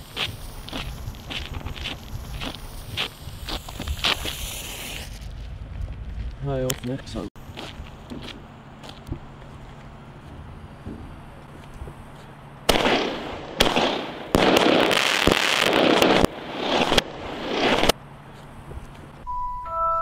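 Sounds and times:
fireworks blasts: 0.0 - 6.5, 12.7 - 18.0
glockenspiel tune: 19.3 - 20.0.

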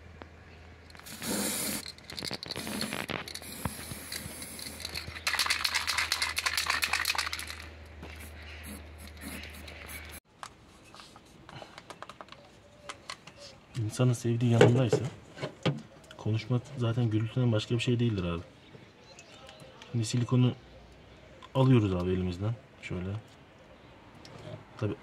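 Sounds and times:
spray paint can hissing: 1.0 - 10.2.

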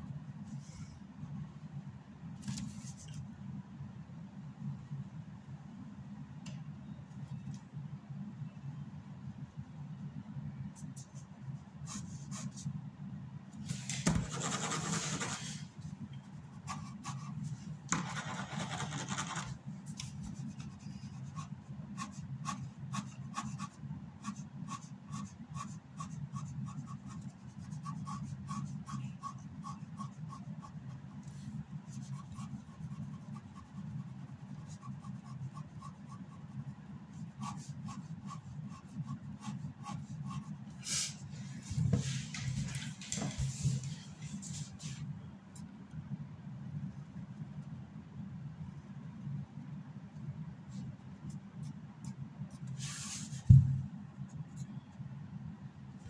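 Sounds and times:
steady low hum: 0.0 - 56.0
pen scratching on paper: 14.0 - 15.6, 16.7 - 19.6, 20.2 - 30.9, 31.9 - 40.6.

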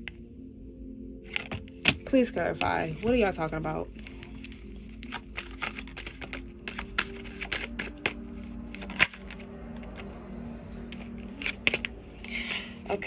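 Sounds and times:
cards being shuffled: 1.3 - 3.3, 4.0 - 10.1, 10.8 - 12.5.

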